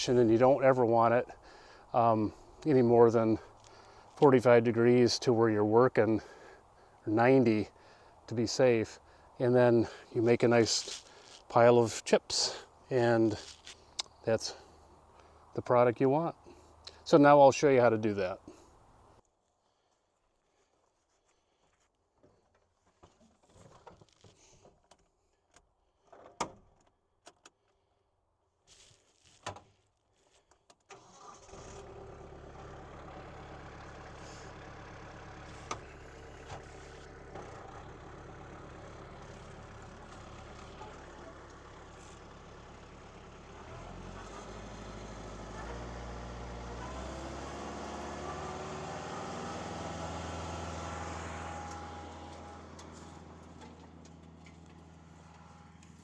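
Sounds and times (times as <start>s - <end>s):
tractor engine running: 0.0s - 15.4s, 31.0s - 56.0s
wood chipper whine: 3.3s - 4.2s, 31.1s - 56.0s.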